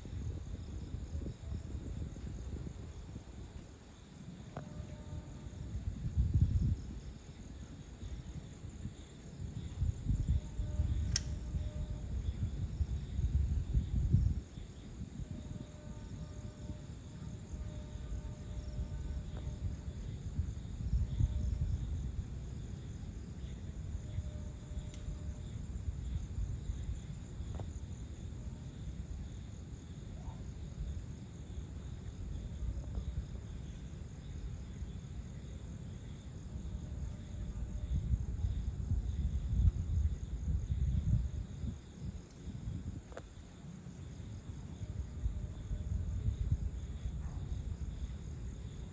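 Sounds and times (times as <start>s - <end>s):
crickets and insects trilling: 0.0s - 48.9s
sharp click: 11.0s - 11.4s.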